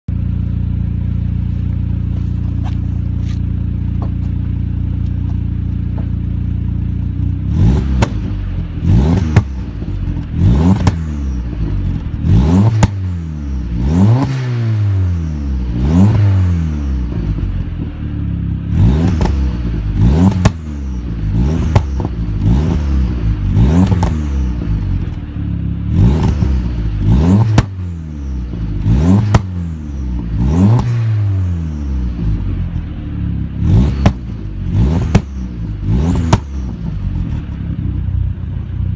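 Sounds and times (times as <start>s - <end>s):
car engine revving: 0.2s - 38.9s
exhaust pops and crackles: 1.6s - 6.5s, 7.8s - 8.4s, 9.1s - 13.0s, 20.2s - 20.7s, 21.6s - 22.3s, 23.8s - 24.2s, 27.4s - 27.8s, 29.2s - 29.6s, 33.8s - 38.6s.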